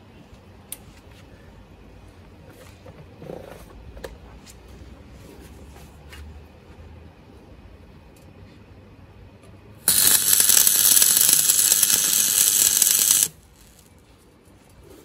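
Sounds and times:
welding arc sizzling hiss: 0:09.9 - 0:14.0.

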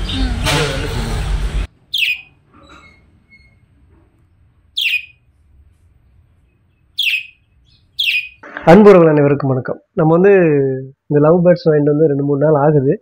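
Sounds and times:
budgerigar chirps: 0:01.9 - 0:02.3, 0:04.8 - 0:05.2, 0:06.9 - 0:08.4.

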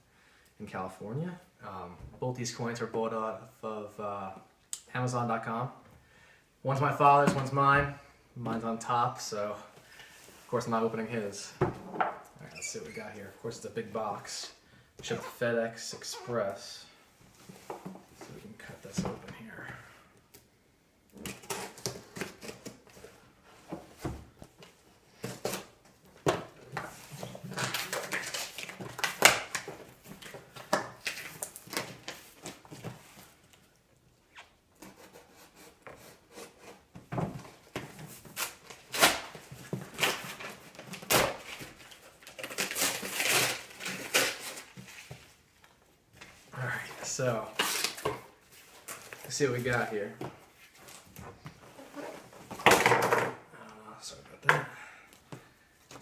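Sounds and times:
tape and cardboard ripping: 0:21.1 - 0:22.8, 0:27.1 - 0:32.7, 0:38.2 - 0:45.1, 0:47.5 - 0:48.2.

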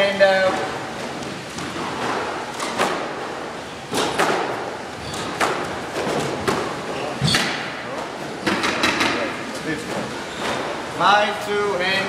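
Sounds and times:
squash ball knocks echoing: 0:00.4 - 0:09.2.

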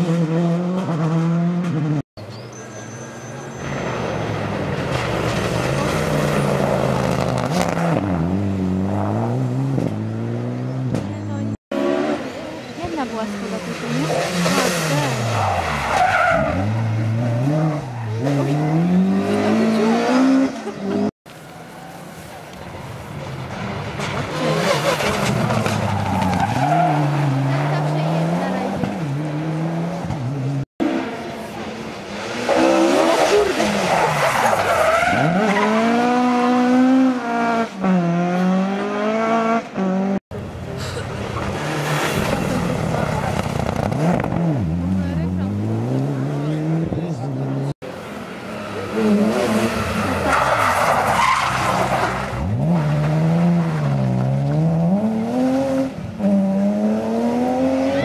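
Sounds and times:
rally car engine revving: 0:00.0 - 0:02.0, 0:03.6 - 0:21.1, 0:23.4 - 0:58.0
tyre squeal: 0:02.3 - 0:03.8.

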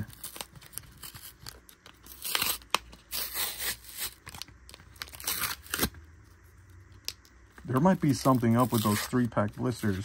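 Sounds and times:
cardboard tearing: 0:00.0 - 0:04.4, 0:05.0 - 0:06.0.

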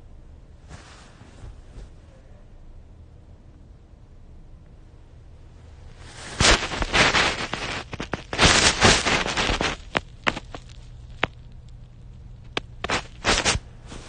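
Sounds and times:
fabric rubbing on microphone: 0:00.6 - 0:02.1, 0:05.9 - 0:11.3, 0:12.5 - 0:14.0.

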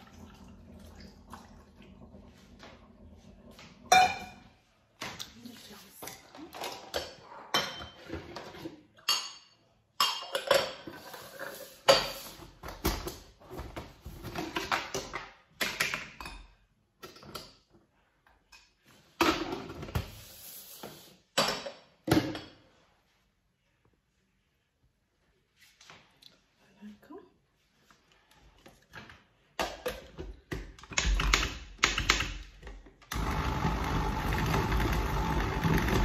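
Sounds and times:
dishes and utensils clattering: 0:03.9 - 0:04.6, 0:06.0 - 0:12.4.

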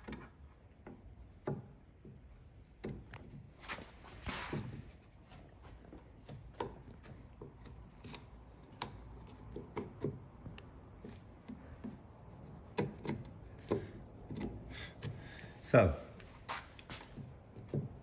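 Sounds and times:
chisel tapping into wood: 0:00.0 - 0:03.5, 0:05.8 - 0:15.4, 0:17.2 - 0:18.0.

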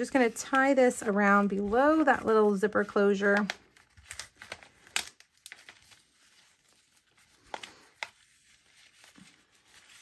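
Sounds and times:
ribbon rustling: 0:00.0 - 0:10.0
paper bag crinkling: 0:03.6 - 0:10.0.

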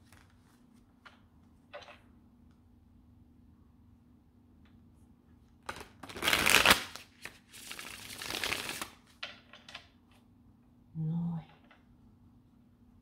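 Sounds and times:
cards shuffling: 0:05.6 - 0:09.1.

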